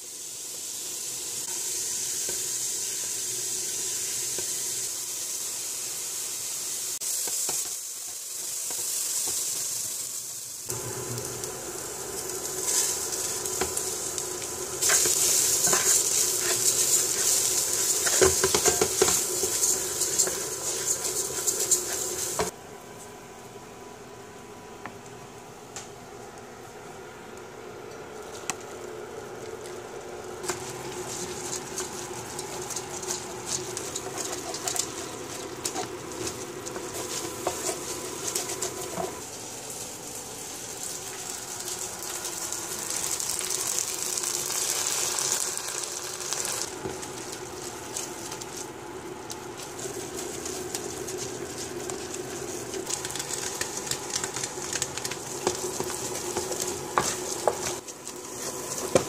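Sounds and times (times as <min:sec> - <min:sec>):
rice sizzling and bubbling: 0:00.0 - 0:59.0
wooden spoon stirring pot: 0:12.2 - 0:22.6, 0:30.4 - 0:44.0, 0:45.8 - 0:59.0.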